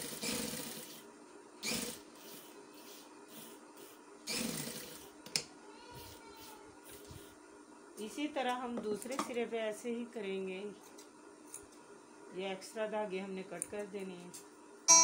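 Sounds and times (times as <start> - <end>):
sewing machine stitching: 0.0 - 1.0, 4.3 - 5.0.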